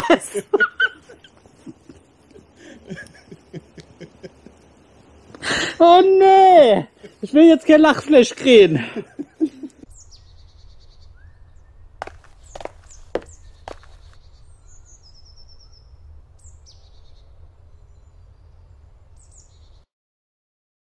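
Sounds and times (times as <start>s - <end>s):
birds chirping and whistling: 9.9s - 19.8s.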